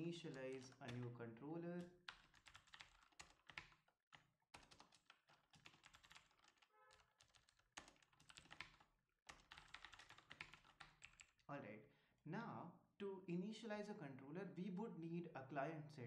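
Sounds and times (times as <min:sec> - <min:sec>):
faint computer keyboard typing: 0:00.0 - 0:11.4.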